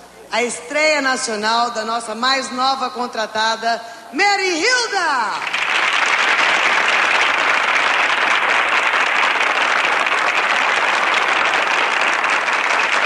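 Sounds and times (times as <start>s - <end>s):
audience applause: 5.4s - 13.0s.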